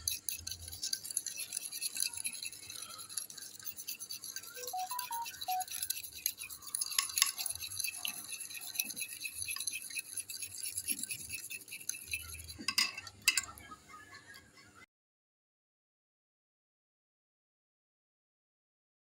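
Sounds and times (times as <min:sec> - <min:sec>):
fork whisking egg in dish: 0:00.0 - 0:14.2.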